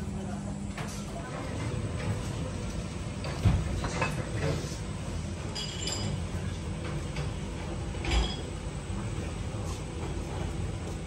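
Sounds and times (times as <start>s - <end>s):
steady low hum: 0.0s - 11.0s
ceramic tableware clinking: 5.5s - 6.2s, 8.0s - 8.5s.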